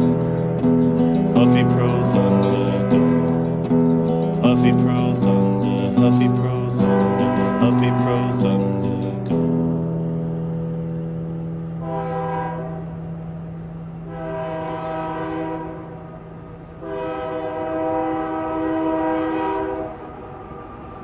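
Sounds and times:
multi-tone horn blasts: 0:00.0 - 0:04.3, 0:06.4 - 0:09.5, 0:11.7 - 0:13.3, 0:14.0 - 0:20.0
low hum: 0:00.0 - 0:21.0.

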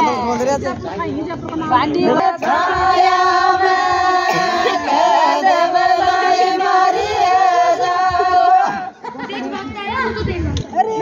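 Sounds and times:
group of women singing: 0:01.7 - 0:09.1.

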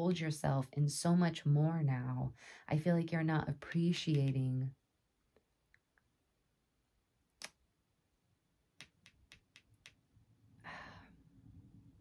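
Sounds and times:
soft breath: 0:10.6 - 0:11.4.

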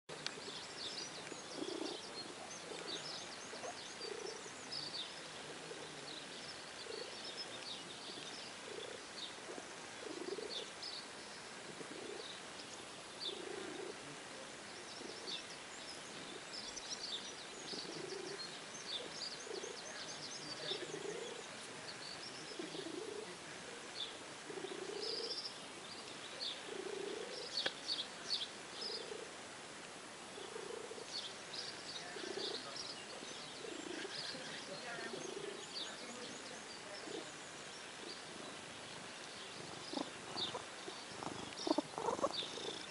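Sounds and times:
birds chirping and trilling: 0:00.3 - 0:09.4, 0:14.7 - 0:23.3, 0:30.4 - 0:42.9
low bird call: 0:39.2 - 0:42.9.

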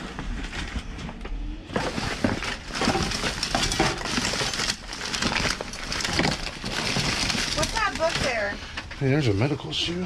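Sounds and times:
junk rummaged in a dumpster: 0:01.7 - 0:09.1.

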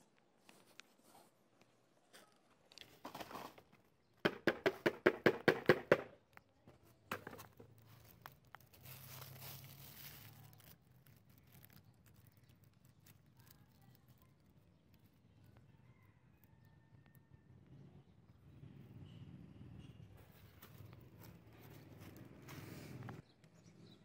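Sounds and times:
plastic rubbish rustling and crinkling: 0:07.1 - 0:14.7.

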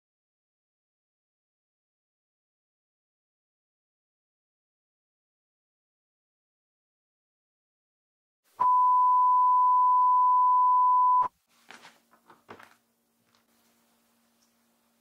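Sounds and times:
steady electronic beep: 0:08.6 - 0:11.3.

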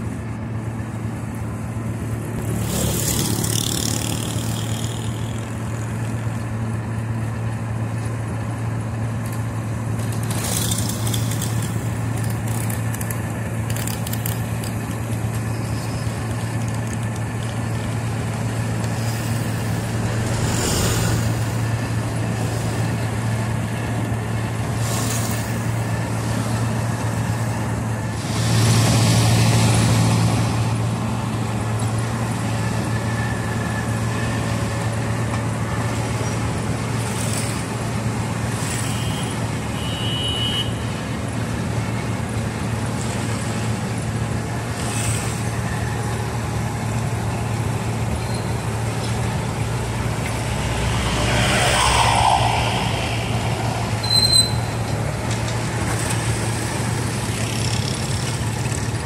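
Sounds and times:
milling machine diesel engine drone: 0:00.0 - 0:59.0
street traffic: 0:00.0 - 0:59.0
short hisses: 0:19.0 - 0:21.8.

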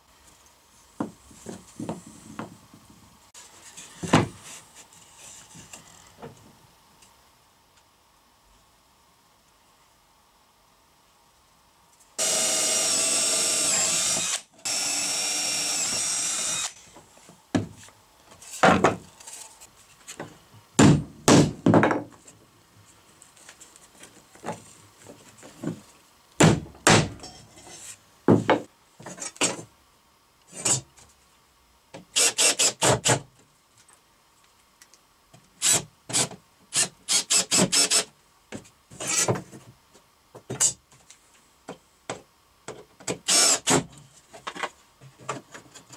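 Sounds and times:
cordless drill boring through wood: 0:12.2 - 0:16.8, 0:32.2 - 0:32.7, 0:35.6 - 0:38.0, 0:43.3 - 0:43.8.

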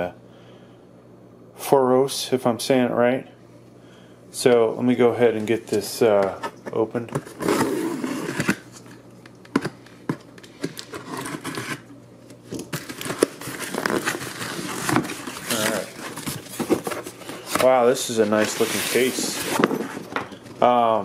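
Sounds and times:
cardboard scraping and rustling: 0:05.5 - 0:09.0, 0:10.8 - 0:11.9, 0:12.6 - 0:20.2.

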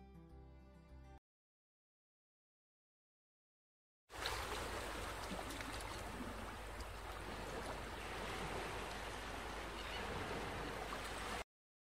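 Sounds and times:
ocean surf rushing: 0:07.1 - 0:11.4.

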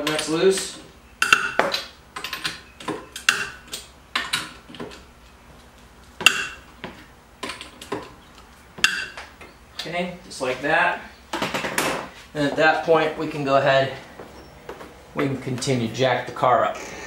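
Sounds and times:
wrench clinking on lug nuts: 0:00.0 - 0:04.6.

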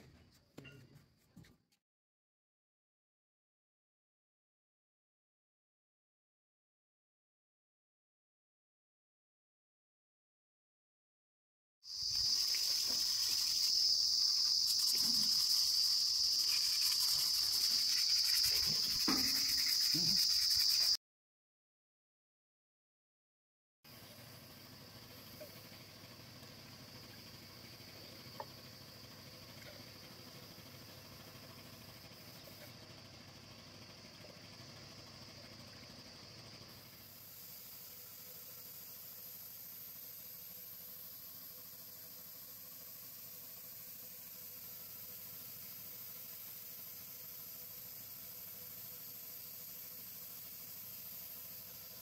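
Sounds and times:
background hiss: 0:11.9 - 0:21.0
insects trilling: 0:11.9 - 0:21.0, 0:23.9 - 0:52.0.

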